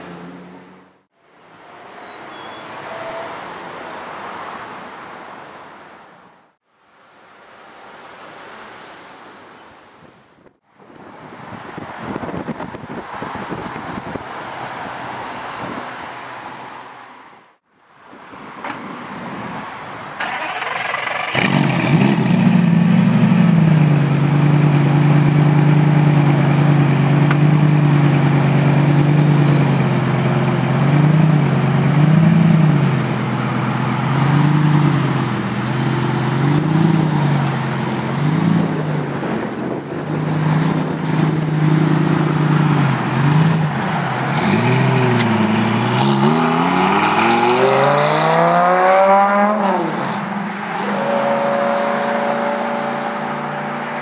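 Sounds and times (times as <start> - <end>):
car engine idling: 20.2 - 38.7
engine revving: 20.2 - 39.0, 40.0 - 50.0
sports car engine starting: 20.2 - 39.0.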